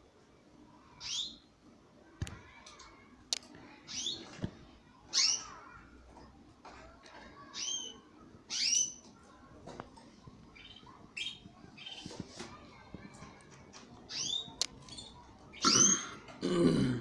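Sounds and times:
canaries chirping: 0.8 - 1.5, 3.7 - 4.4, 5.0 - 5.9, 7.4 - 16.4.

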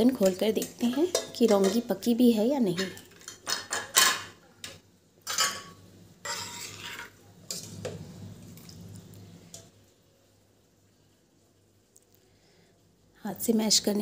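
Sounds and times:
ladle clinking against pot: 3.3 - 7.8
ladle scraping in pot: 5.3 - 8.7.

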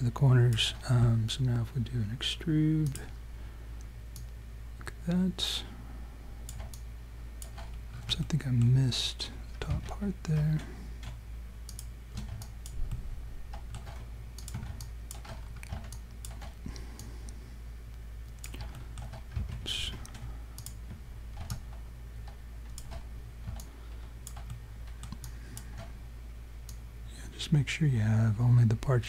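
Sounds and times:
steady low hum: 0.0 - 29.0
computer keyboard and mouse clicks: 6.5 - 6.8, 7.4 - 8.2, 9.6 - 17.1, 18.3 - 25.9.

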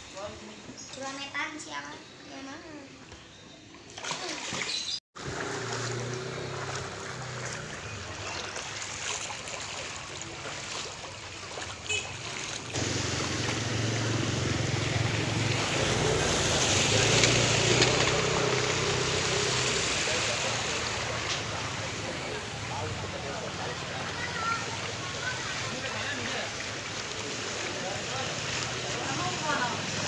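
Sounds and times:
water splashing around wheels: 3.9 - 30.0
motorcycle engine running: 5.2 - 8.2, 12.7 - 19.7.

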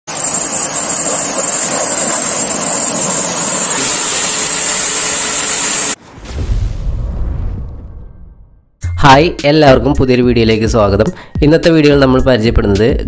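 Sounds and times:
deep boom: 6.0 - 8.8.

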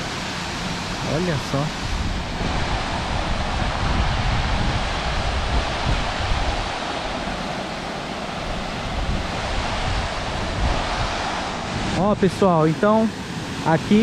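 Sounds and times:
wind rumble on microphone: 1.1 - 12.3.

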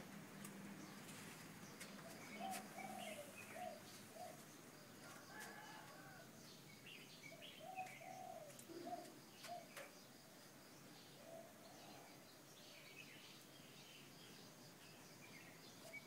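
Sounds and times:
small birds chirping: 0.0 - 16.0
dove cooing: 2.0 - 4.4, 7.6 - 9.8.

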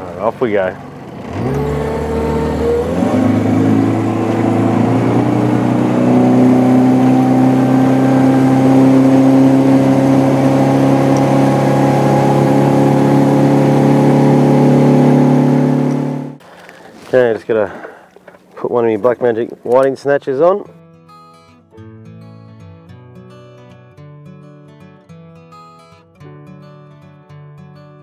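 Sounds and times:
outboard motor revving: 0.0 - 17.1.

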